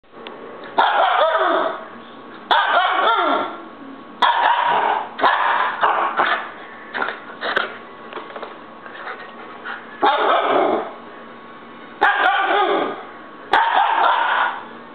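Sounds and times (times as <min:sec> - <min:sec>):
puppy barking and yowling: 0:00.7 - 0:01.9, 0:02.5 - 0:03.6, 0:04.2 - 0:06.5, 0:10.0 - 0:11.0, 0:12.0 - 0:14.6.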